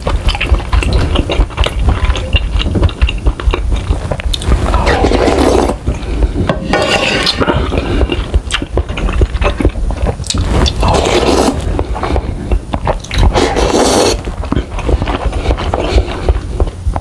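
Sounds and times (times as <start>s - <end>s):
person slurping noodle soup: 0.0s - 16.6s.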